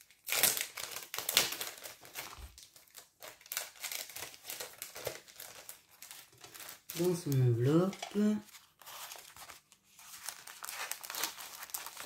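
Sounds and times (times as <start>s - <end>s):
paper and card rustling: 0.3s - 12.0s.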